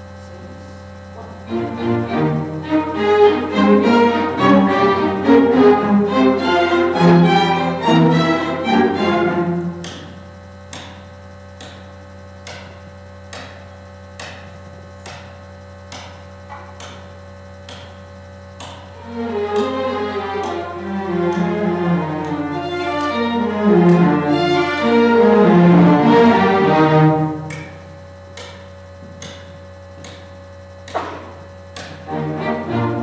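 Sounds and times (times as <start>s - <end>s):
sharp ticking beat: 1.0s - 33.0s
string orchestra playing: 1.5s - 9.8s, 19.0s - 27.4s, 32.1s - 33.0s.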